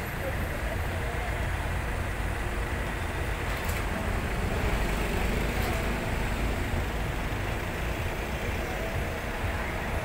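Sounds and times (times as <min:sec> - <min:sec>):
slow heavy traffic rumble: 0:00.0 - 0:10.0.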